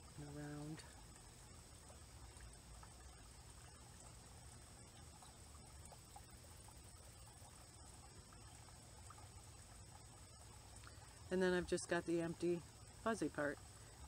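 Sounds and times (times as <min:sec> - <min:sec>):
insects chirring: 0:00.0 - 0:14.0
low steady hum: 0:00.0 - 0:14.0
faint soft ticks: 0:04.9 - 0:07.6, 0:10.4 - 0:11.3.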